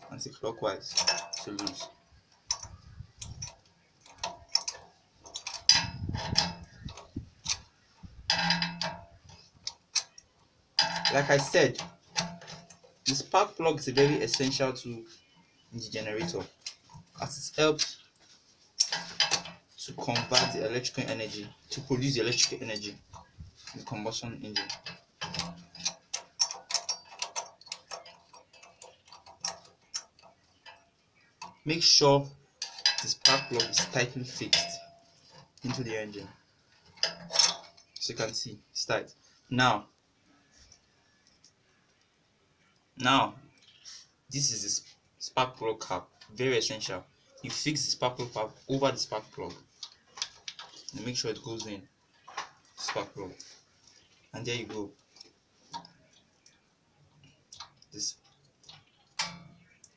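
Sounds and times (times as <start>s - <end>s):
metal spanner clicking and clinking: 0.1s - 14.6s, 18.8s - 32.0s, 32.6s - 36.2s, 36.8s - 38.4s, 57.2s - 59.9s.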